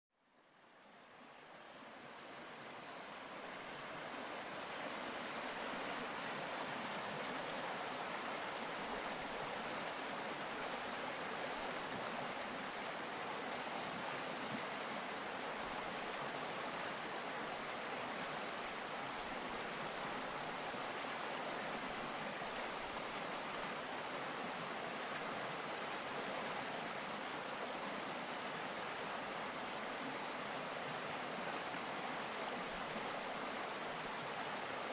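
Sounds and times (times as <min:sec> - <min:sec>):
creek water flowing over stones: 0:00.5 - 0:34.9.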